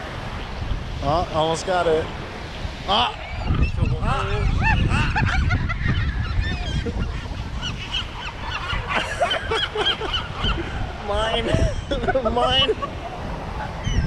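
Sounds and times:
seagulls squawking: 2.9 - 14.0.

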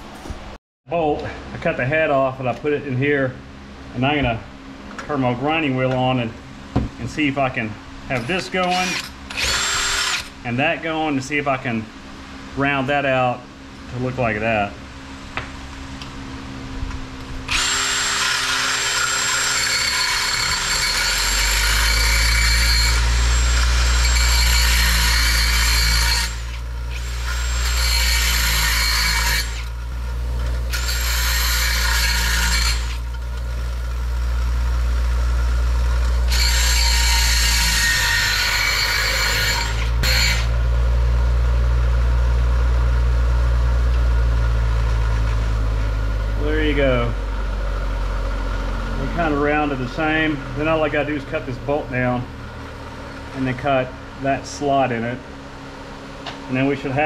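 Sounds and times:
grinder motor hum: 4.0 - 11.6, 15.3 - 57.0
harsh metal grinding: 8.1 - 10.7, 17.4 - 40.8.

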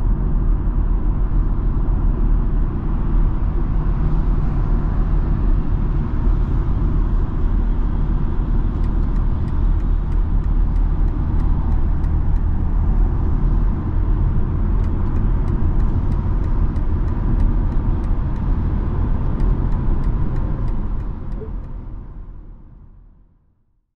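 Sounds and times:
road and tyre rumble: 0.0 - 23.4
light regular ticking: 8.5 - 13.2, 14.3 - 21.8.

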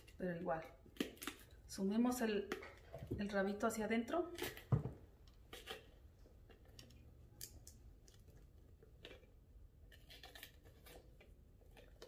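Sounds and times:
bell pepper cracking and squeaking: 9.9 - 12.0.

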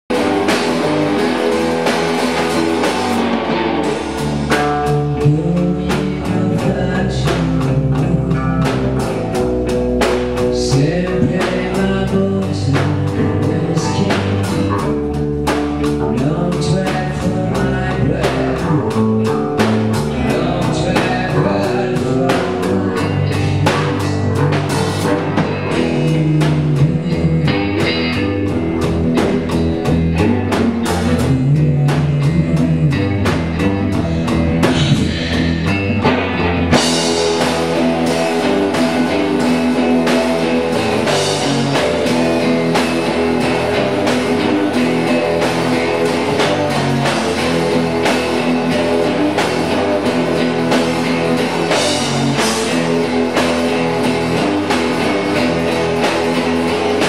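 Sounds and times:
guitars playing blues: 0.0 - 57.0
drum kit beat: 0.1 - 57.0
man singing into a microphone: 4.7 - 9.1, 10.4 - 15.1, 16.0 - 28.2, 30.0 - 36.1.

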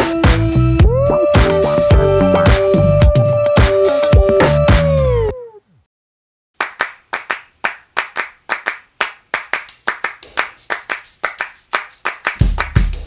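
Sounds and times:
hand-clap beat: 0.0 - 5.0, 6.6 - 13.0
bass and drums: 0.0 - 5.3, 12.4 - 13.0.

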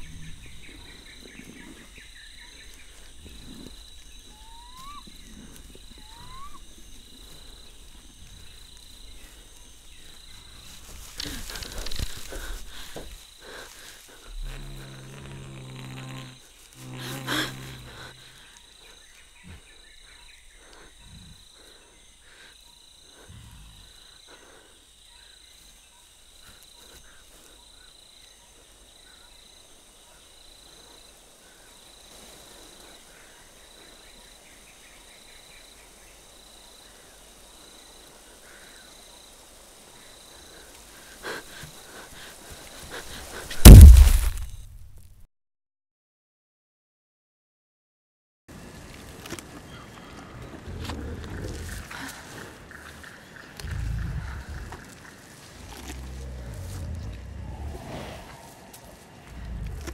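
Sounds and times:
deep growl: 0.0 - 1.1, 53.6 - 59.9
insects chirping: 0.0 - 45.0, 48.5 - 59.9
sharp loud hit: 43.6 - 44.7
loud crash: 43.6 - 44.9.

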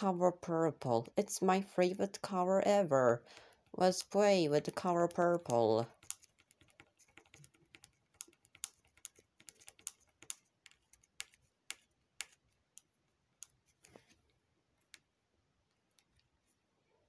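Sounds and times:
plastic pick tapping tabletop: 4.9 - 13.6.

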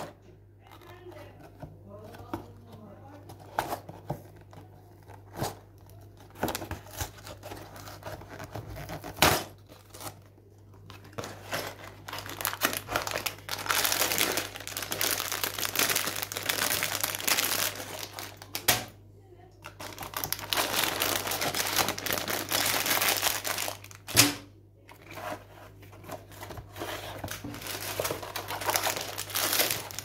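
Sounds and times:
plastic bag crinkling: 4.4 - 18.7, 19.6 - 24.1, 26.0 - 30.0
cardboard tearing: 6.4 - 10.2.

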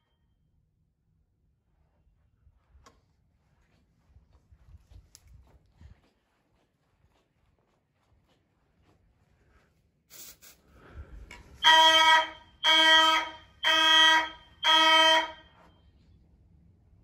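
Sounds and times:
short hisses: 10.1 - 10.9
fire alarm horn blasts: 11.5 - 16.2.

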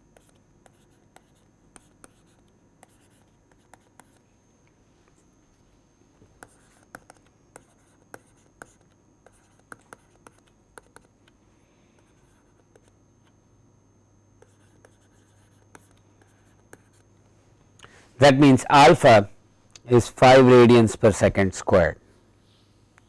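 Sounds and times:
stylus tapping and scratching screen: 0.1 - 4.2, 6.4 - 11.4, 14.4 - 17.1.

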